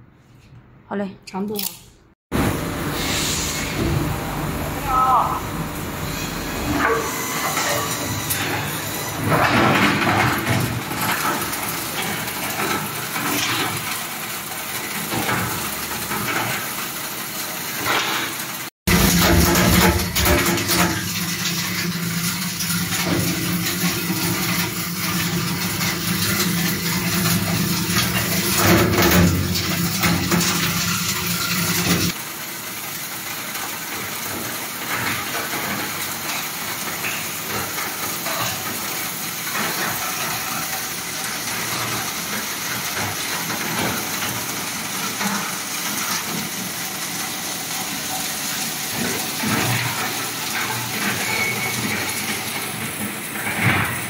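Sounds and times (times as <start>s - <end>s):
low machine hum: 2.3s - 12.6s.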